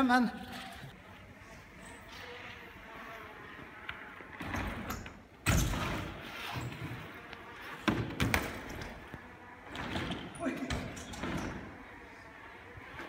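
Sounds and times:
rolling tyre noise: 0:00.5 - 0:13.0
bike landing thud on concrete: 0:07.8 - 0:09.0.

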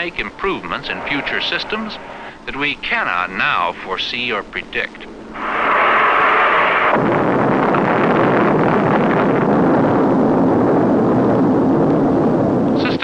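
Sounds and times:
loud steady rushing noise: 0:00.0 - 0:03.3, 0:05.1 - 0:09.7.

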